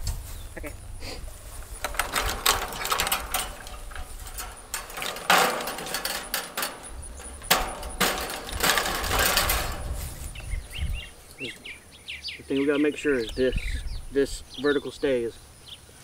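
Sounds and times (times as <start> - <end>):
fence wire rattling and scraping: 1.3 - 11.8.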